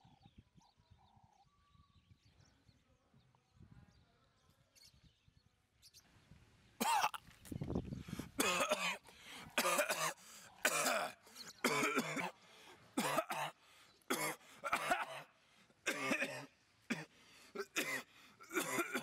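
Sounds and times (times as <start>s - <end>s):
man coughing: 6.8s - 7.2s, 8.4s - 9.0s, 9.6s - 12.4s, 13.0s - 15.3s, 15.9s - 19.0s.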